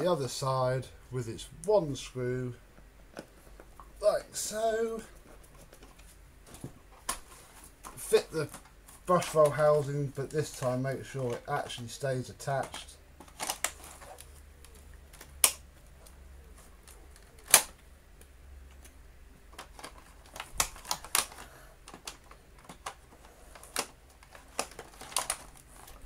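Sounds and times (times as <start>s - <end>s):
sharp plastic clicks and knocks: 16.9s - 26.0s.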